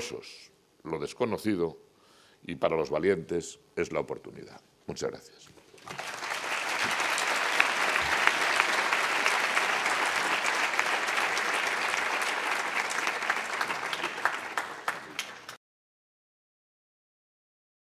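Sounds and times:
audience applauding: 5.8 - 15.6.

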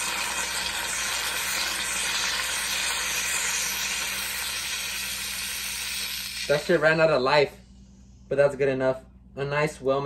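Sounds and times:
aerosol whipped cream hissing: 0.0 - 7.0.

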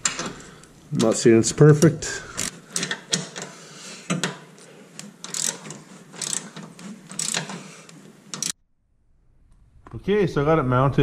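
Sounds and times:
socket wrench ratcheting: 5.2 - 7.6, 8.3 - 8.6.

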